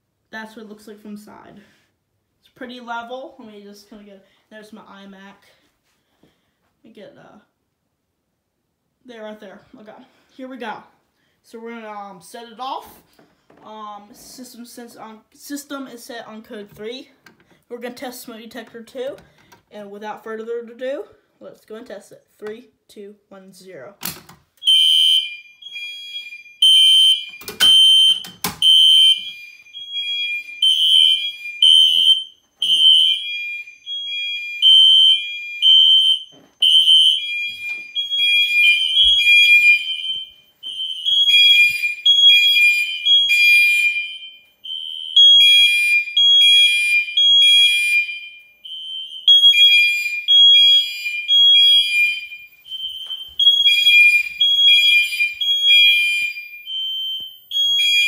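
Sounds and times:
fire alarm horns beeping: 24.6s - 58.0s.

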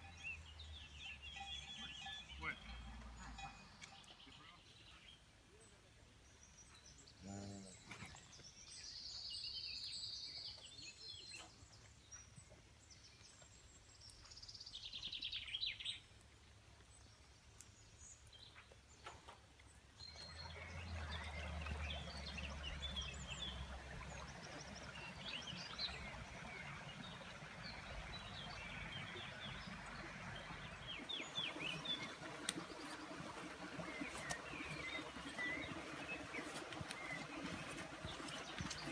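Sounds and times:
small birds chirping and singing: 0.0s - 38.9s
shallow water running over stones: 13.2s - 38.9s.

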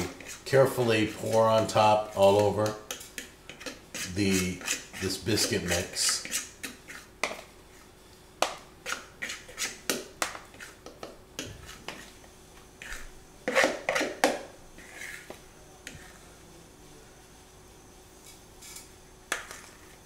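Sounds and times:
fork scraping and tapping bowl: 1.0s - 7.5s, 8.4s - 12.1s, 12.8s - 14.4s.

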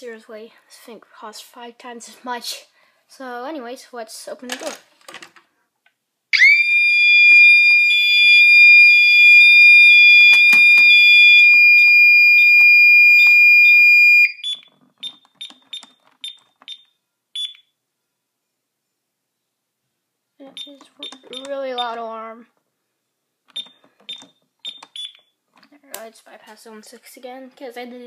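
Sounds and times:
loud high-pitched alarm tone: 6.4s - 14.4s
short keypad beeps: 13.2s - 17.7s, 20.6s - 21.9s.

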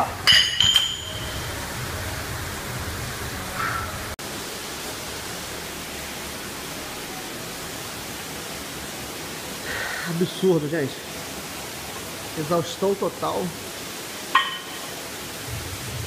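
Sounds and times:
steady hiss: 0.0s - 16.0s
metallic clank of dumbbells: 0.2s - 1.4s.

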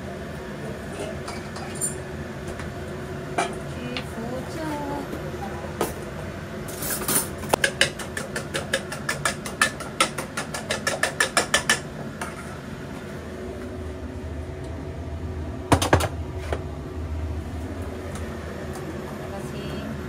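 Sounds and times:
fork whisking eggs in metal bowl: 7.6s - 11.8s.

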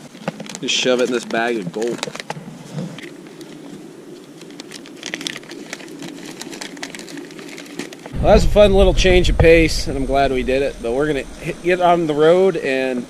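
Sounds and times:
plastic bag crinkling: 4.5s - 8.1s.

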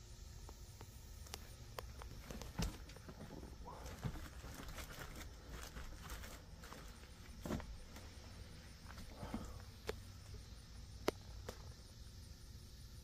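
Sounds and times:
footsteps crunching on debris: 2.0s - 9.4s.

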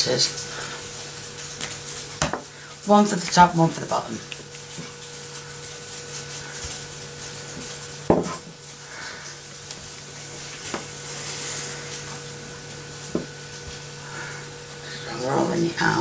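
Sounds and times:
rolling pin knocking on table: 8.1s - 8.4s.

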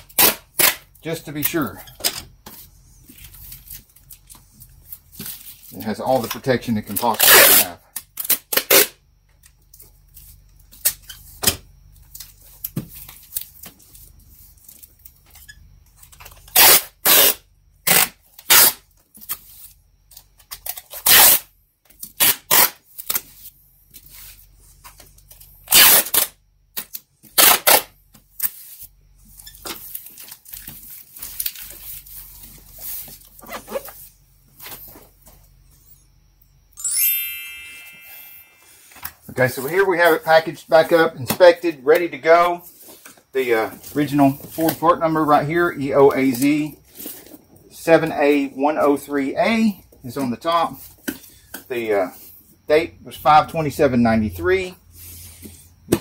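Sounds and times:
packing tape pulled off roll: 0.0s - 0.9s, 6.9s - 9.0s, 16.3s - 19.5s, 20.4s - 23.5s, 25.7s - 32.2s.

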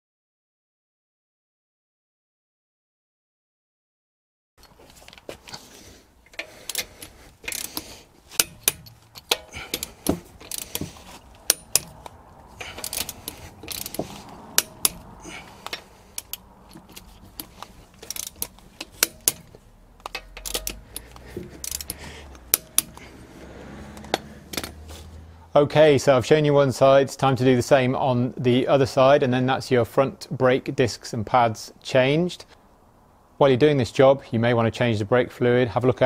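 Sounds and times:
torque wrench clicking: 6.2s - 23.2s.

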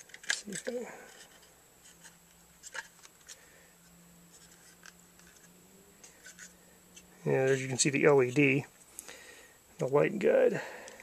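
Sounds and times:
hard plastic clicks and scrapes: 0.0s - 3.4s
faint low hum: 0.0s - 11.0s.

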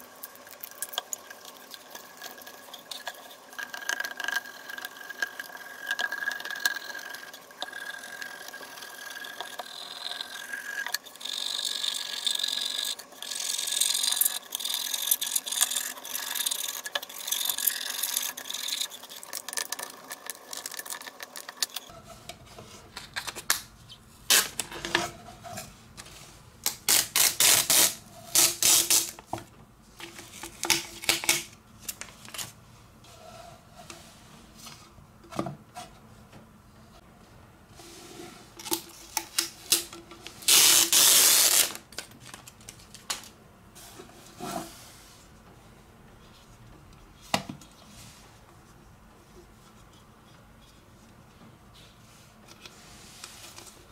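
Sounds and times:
spatula scraping tape on plastic: 26.7s - 29.2s.

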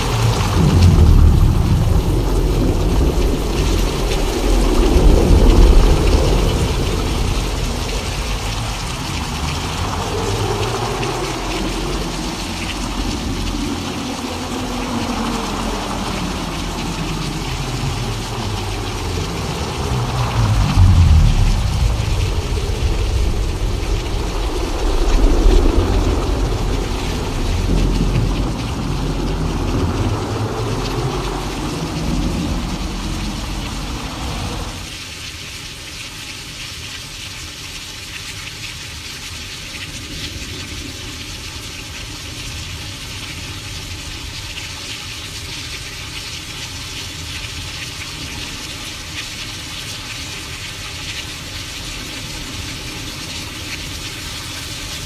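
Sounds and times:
rolling thunder rumble: 0.0s - 34.9s
rain-like hiss: 0.0s - 55.0s.

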